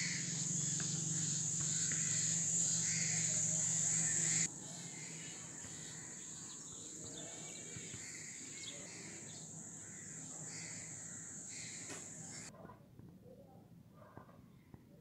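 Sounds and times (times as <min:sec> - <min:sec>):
high-pitched insect drone: 0:00.0 - 0:07.0
faint bird calls: 0:00.0 - 0:12.5.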